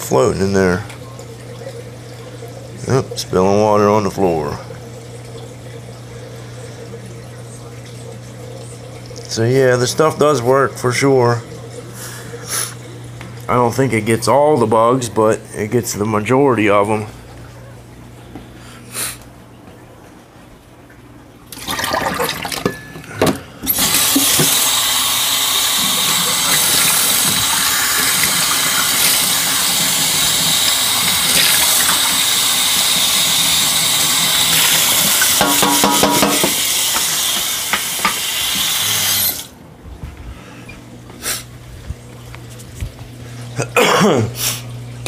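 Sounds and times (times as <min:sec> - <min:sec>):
tap water running into sink: 0:21.5 - 0:39.6.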